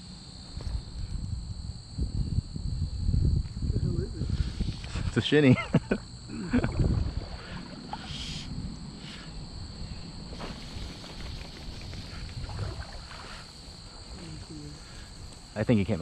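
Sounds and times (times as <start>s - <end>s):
crickets trilling: 0.0s - 16.0s
wind rumble: 0.6s - 5.2s, 6.5s - 15.6s
moving water: 10.3s - 14.2s.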